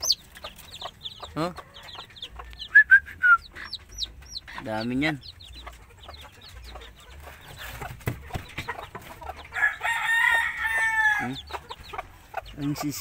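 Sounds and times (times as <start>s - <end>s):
chicks peeping: 0.0s - 13.0s
rooster crowing: 9.6s - 11.4s.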